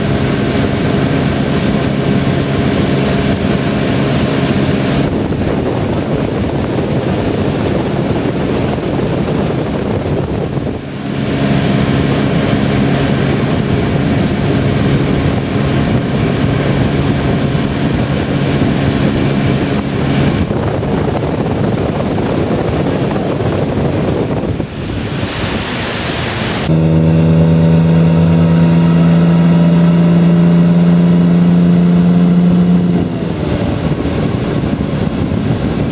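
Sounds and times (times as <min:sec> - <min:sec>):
boat engine running: 0:00.0 - 0:35.9
water rushing: 0:00.0 - 0:35.9
wind buffeting microphone: 0:00.0 - 0:35.9.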